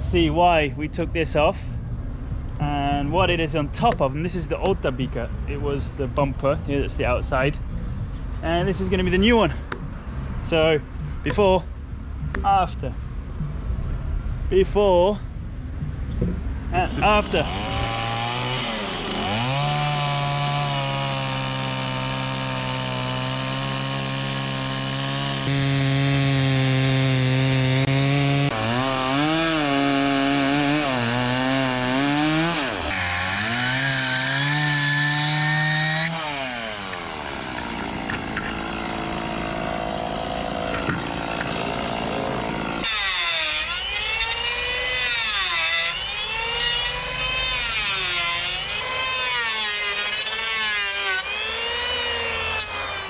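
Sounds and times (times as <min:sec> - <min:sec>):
chainsaw cutting through timber: 0:16.8 - 0:53.0.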